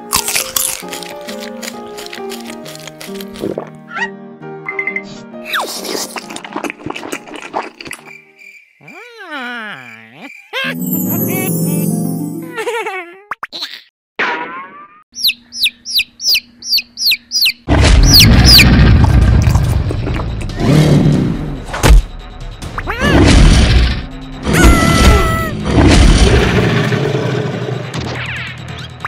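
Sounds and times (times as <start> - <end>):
bird chirps: 15.2 - 18.6
sharp music hit: 17.8 - 28.2
loud soundtrack music: 18.8 - 29.0.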